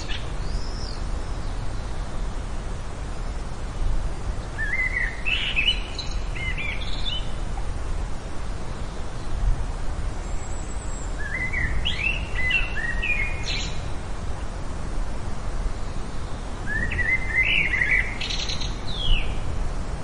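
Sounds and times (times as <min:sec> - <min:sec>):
songbird warbling chirps: 0:00.0 - 0:02.1, 0:04.5 - 0:07.7, 0:10.2 - 0:14.0, 0:15.8 - 0:19.5
low background noise: 0:00.0 - 0:20.0.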